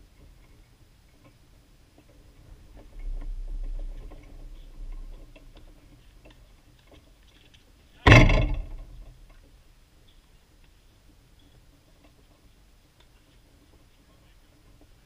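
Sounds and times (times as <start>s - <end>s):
low rumble: 2.3s - 6.2s.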